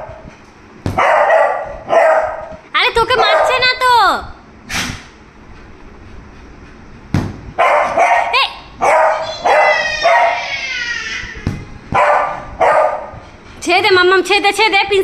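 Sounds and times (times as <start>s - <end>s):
dog barking: 1.0s - 2.5s, 3.1s - 3.7s, 7.6s - 10.4s, 12.0s - 13.2s
dog baying: 7.6s - 10.6s.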